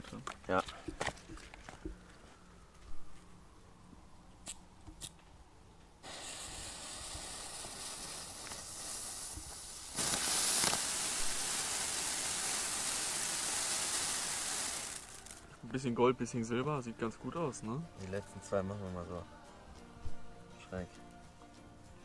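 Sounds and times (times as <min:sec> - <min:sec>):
firework fountain spraying sparks: 0:06.0 - 0:15.6
firework fuse hissing: 0:06.0 - 0:15.6.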